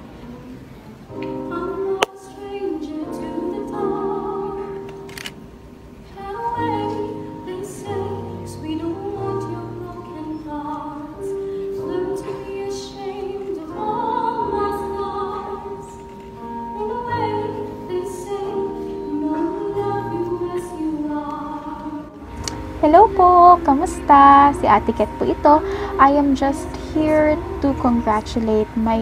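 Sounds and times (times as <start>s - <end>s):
operatic singing with vibrato: 16.7s - 29.0s
low sustained accompaniment: 16.8s - 29.0s.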